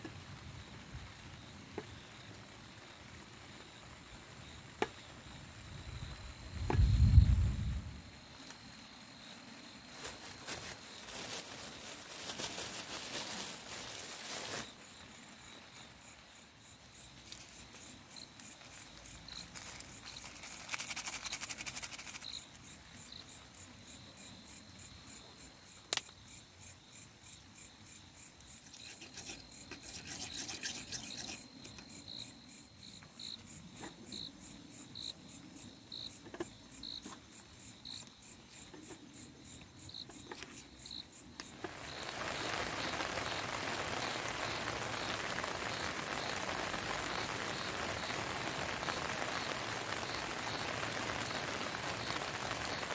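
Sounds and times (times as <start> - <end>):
insects whining and chirping: 0.6 - 52.9
insect rasping buzz: 28.4 - 33.3.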